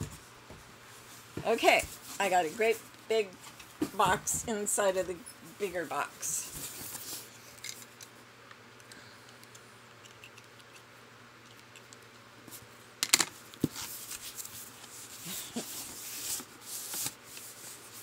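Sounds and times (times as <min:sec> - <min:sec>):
paper crinkling and rustling: 0:13.6 - 0:18.0.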